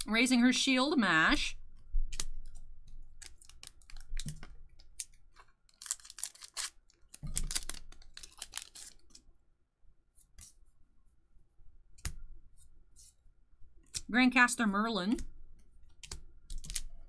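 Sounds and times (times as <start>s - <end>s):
wrapper rustling: 3.2s - 9.3s.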